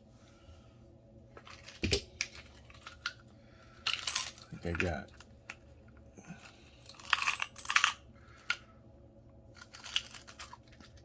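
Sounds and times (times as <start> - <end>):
small metal objects clinking: 3.8 - 5.0, 6.8 - 8.0, 9.6 - 10.6.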